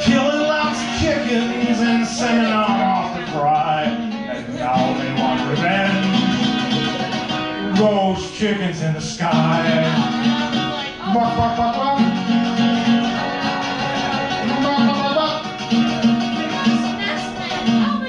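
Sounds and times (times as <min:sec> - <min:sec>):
acoustic guitar strumming: 0:00.0 - 0:18.0
man singing: 0:00.0 - 0:18.0.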